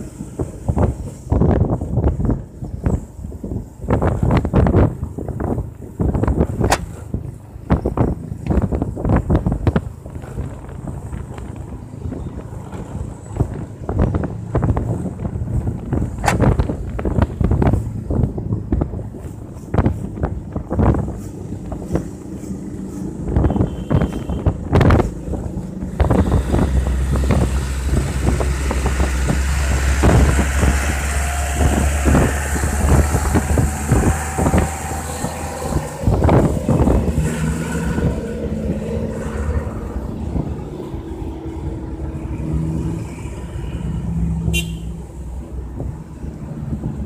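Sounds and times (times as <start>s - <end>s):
traffic of cars and trucks: 0.0s - 47.0s
wind buffeting microphone: 0.0s - 47.0s
motorcycle engine: 11.0s - 43.8s.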